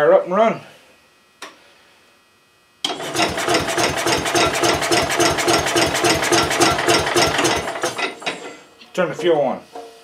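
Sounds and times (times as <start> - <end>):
small engine cranking: 2.9 - 8.0.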